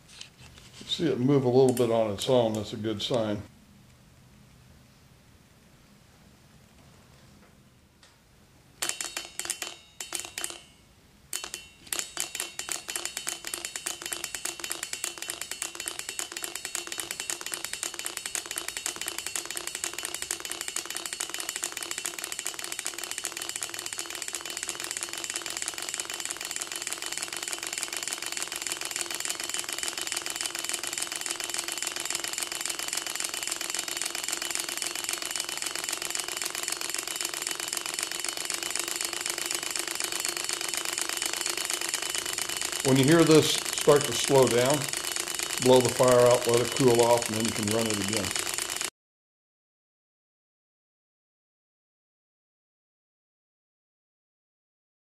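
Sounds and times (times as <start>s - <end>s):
light metallic ringing: 8.8s - 26.0s.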